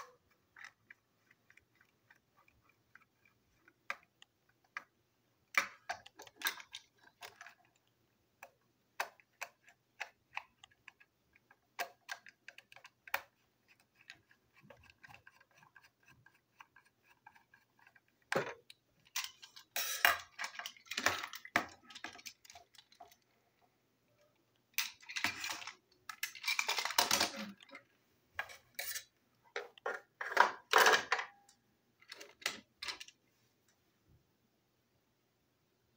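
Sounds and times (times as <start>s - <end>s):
plastic parts rubbing and clattering: 0.0s - 7.9s, 9.3s - 23.4s, 24.8s - 27.8s
plastic toy clicks and rattles: 5.5s - 23.3s, 24.8s - 27.8s, 32.0s - 33.2s.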